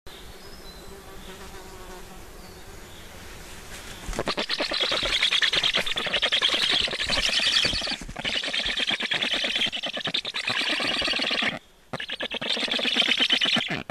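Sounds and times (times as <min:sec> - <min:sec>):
stork chicks rasping chatter: 0:04.1 - 0:13.9.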